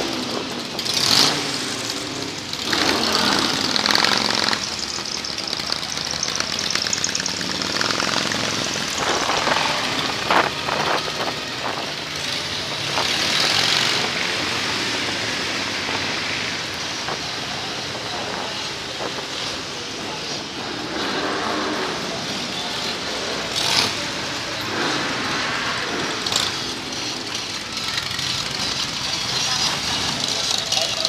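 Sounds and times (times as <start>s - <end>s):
motorcycle engines running: 0.0s - 31.0s
rushing noise: 7.8s - 30.3s.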